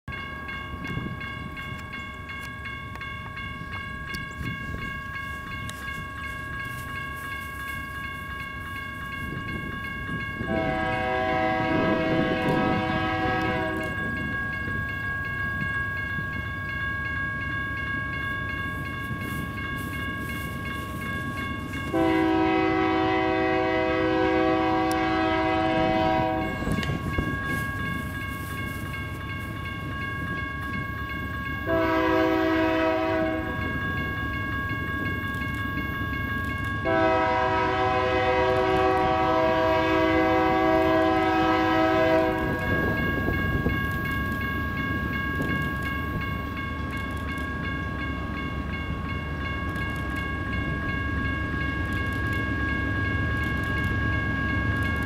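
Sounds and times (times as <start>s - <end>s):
low rumble of train: 0.0s - 55.0s
train air horn blasts: 10.5s - 14.0s, 21.9s - 27.0s, 31.7s - 33.6s, 36.8s - 42.8s.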